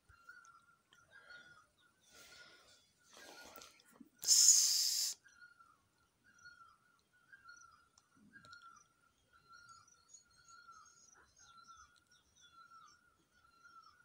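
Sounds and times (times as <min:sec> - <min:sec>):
sharp hiss: 0:04.2 - 0:05.2
faint whistle-like calls: 0:04.2 - 0:05.6.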